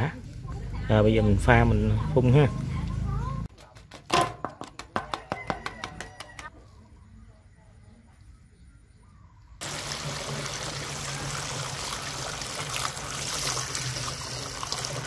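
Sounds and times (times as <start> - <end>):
water running into metal tank: 9.6 - 15.0.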